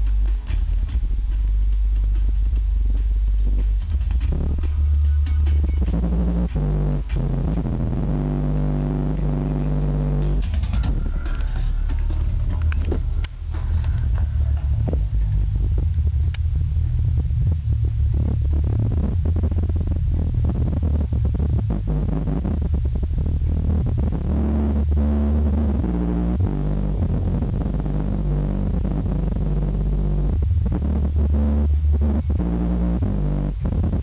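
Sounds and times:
bass-heavy music through subwoofers: 0.0 - 34.0.

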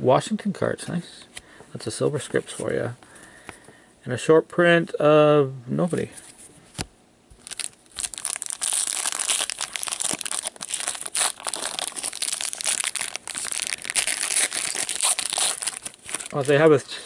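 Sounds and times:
plastic wrapper crinkling: 7.3 - 16.9.

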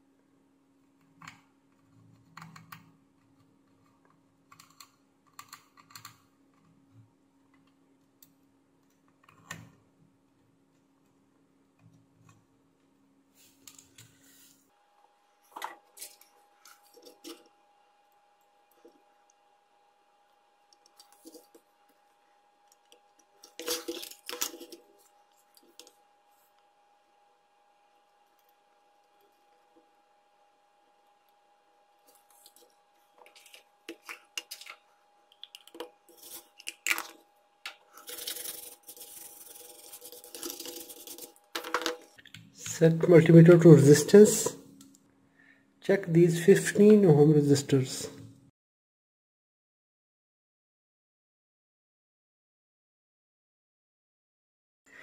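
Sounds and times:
brush scrubbing circuit board: 36.1 - 37.2, 37.9 - 41.7.

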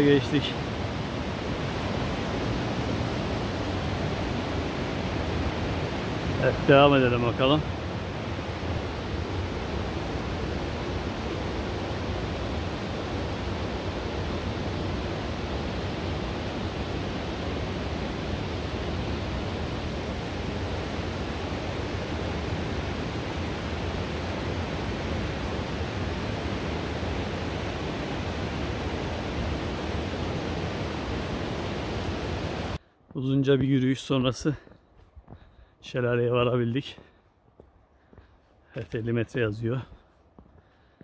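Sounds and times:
mountain stream rushing: 0.0 - 32.8.

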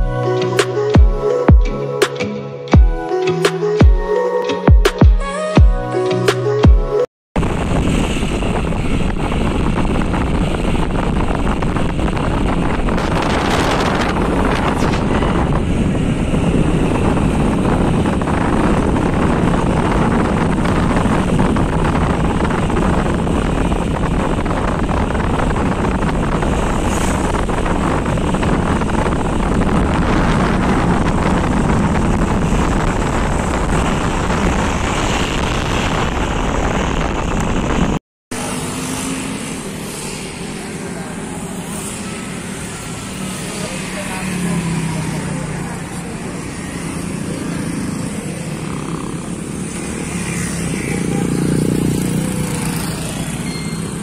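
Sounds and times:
wind rushing over microphone: 7.4 - 54.0
motorcycle engine running: 43.4 - 54.0.

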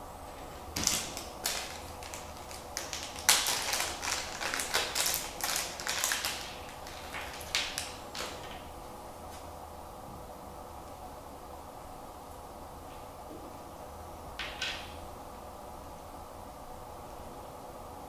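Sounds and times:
plastic bag crinkling: 0.8 - 8.6.

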